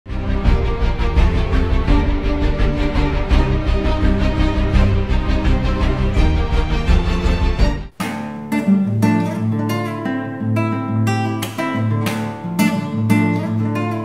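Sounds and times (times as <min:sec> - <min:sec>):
electronic intro music: 0:00.1 - 0:08.0
nylon-string guitar plucking: 0:07.9 - 0:14.0.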